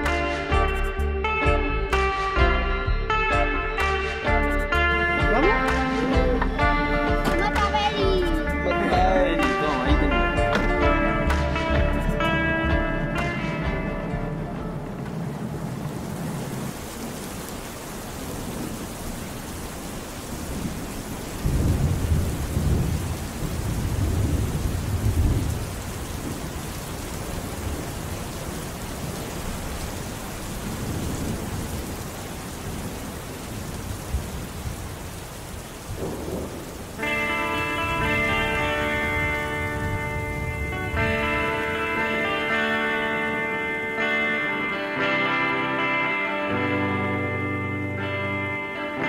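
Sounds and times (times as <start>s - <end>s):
heavy rain: 3.8s - 49.0s
thunder rolling: 10.6s - 44.3s.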